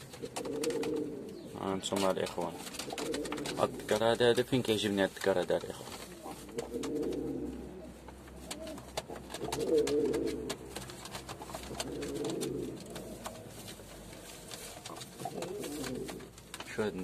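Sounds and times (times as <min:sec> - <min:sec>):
pigeon cooing: 0:00.0 - 0:01.6, 0:02.6 - 0:04.0, 0:06.0 - 0:13.5, 0:14.4 - 0:16.4.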